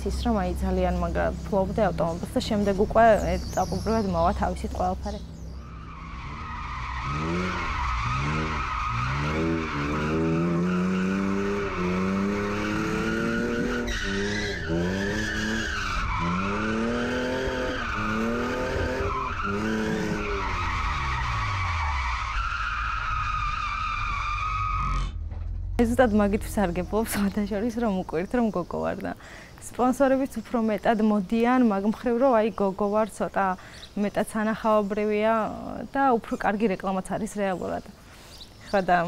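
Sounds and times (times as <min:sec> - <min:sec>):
tyres squealing: 0:01.2 - 0:25.2
car engine revving: 0:04.6 - 0:22.6.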